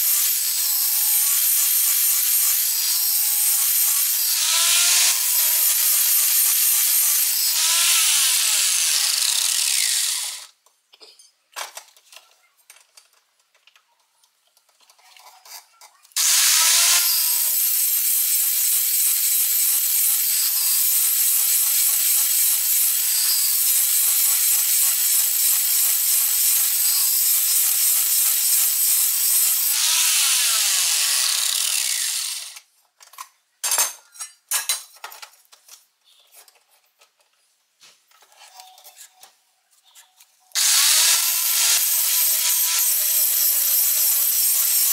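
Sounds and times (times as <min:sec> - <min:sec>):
angle grinder grinding metal: 0:00.0 - 0:10.5, 0:16.2 - 0:32.6, 0:40.6 - 0:44.9.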